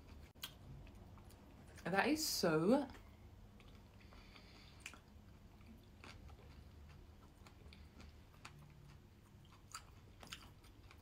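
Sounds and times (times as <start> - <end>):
faint chewing: 2.9 - 11.0.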